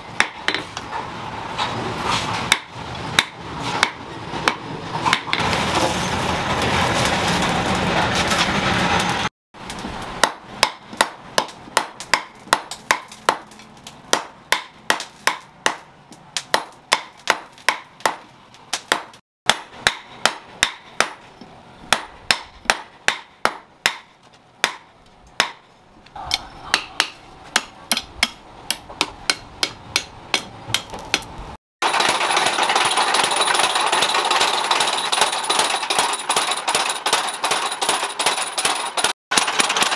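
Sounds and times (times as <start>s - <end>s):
hammer striking steel on anvil: 10.2s - 25.6s, 26.2s - 39.9s
steady machine noise: 31.8s - 39.9s.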